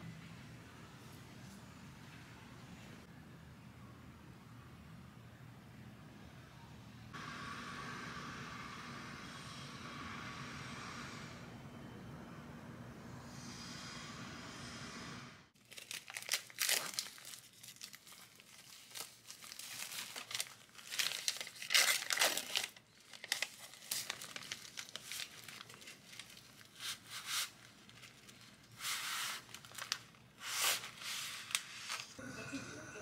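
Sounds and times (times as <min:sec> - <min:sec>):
plastic wrapping crinkling and tearing: 0:15.6 - 0:32.2.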